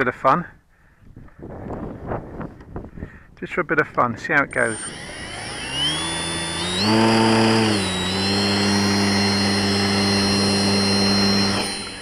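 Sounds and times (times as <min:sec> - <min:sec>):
model plane motor buzzing: 0:04.5 - 0:12.0.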